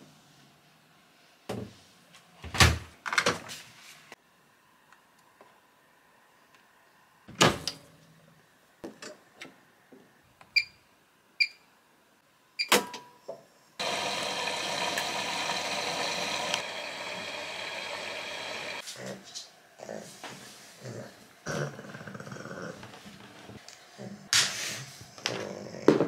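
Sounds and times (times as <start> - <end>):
washing machine water rushing: 13.8 - 18.8.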